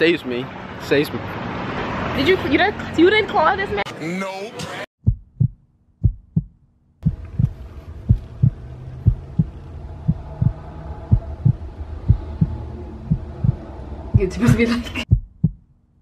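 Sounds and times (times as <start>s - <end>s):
heartbeat thumps: 5.0s - 15.7s.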